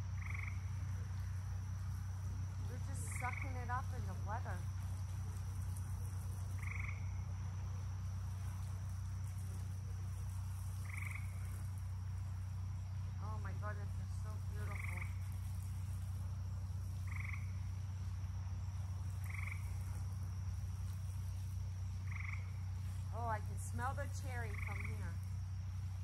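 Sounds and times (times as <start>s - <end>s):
frogs croaking: 0.0s - 26.0s
steady low hum: 0.0s - 26.0s
warbling frog calls: 0.1s - 0.8s, 2.8s - 4.8s, 5.5s - 7.3s, 10.6s - 12.4s, 13.0s - 16.0s, 16.9s - 18.1s, 19.1s - 20.2s, 22.0s - 25.4s.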